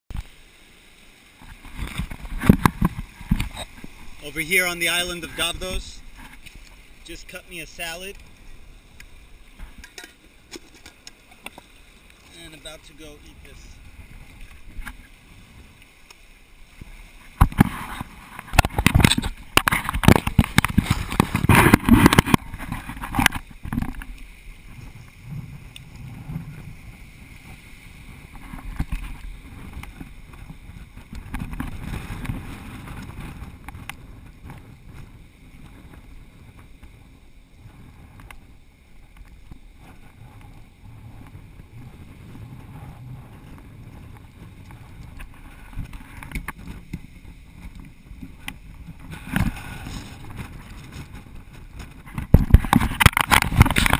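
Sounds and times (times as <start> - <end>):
wind on microphone: 1.4 - 11.6, 16.6 - 53.9.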